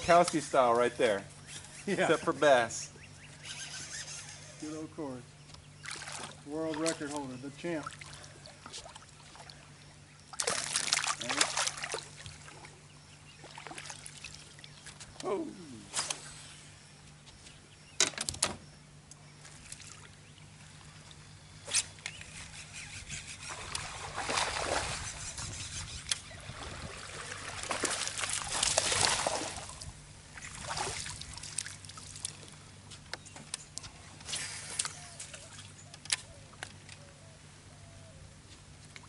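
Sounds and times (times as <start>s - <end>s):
steady low hum: 0.0s - 39.0s
water sloshing and trickling: 5.8s - 15.2s, 19.3s - 22.3s, 23.2s - 36.9s.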